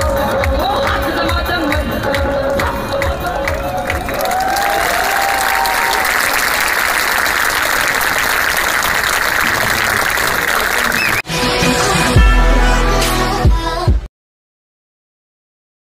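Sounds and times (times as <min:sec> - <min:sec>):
audience applauding: 0:02.6 - 0:11.2
people cheering: 0:03.0 - 0:11.3.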